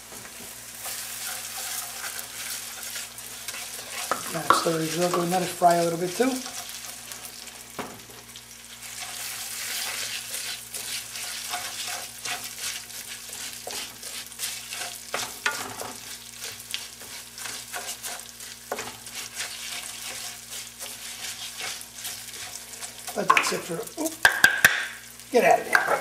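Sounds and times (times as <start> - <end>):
rice sizzling in oil: 0.0 - 26.0
spoon stirring scrape: 0.8 - 7.3, 8.8 - 23.6.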